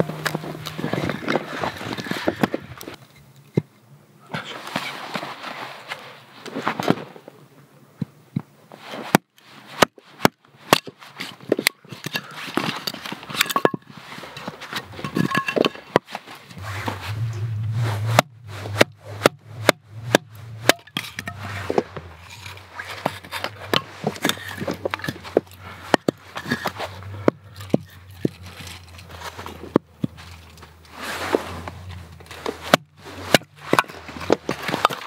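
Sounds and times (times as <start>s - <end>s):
wood pieces being handled: 0.0s - 3.6s, 10.7s - 16.6s, 18.0s - 35.0s
low hum: 0.0s - 4.4s, 16.6s - 34.9s
hatchet splitting wood: 18.1s - 30.6s, 32.2s - 35.0s.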